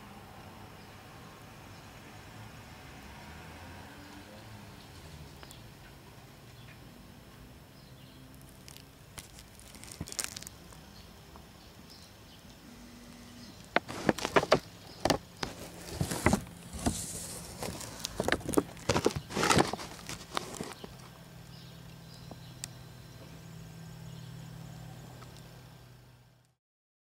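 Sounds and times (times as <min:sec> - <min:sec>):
steady low hum: 0:07.2 - 0:26.6.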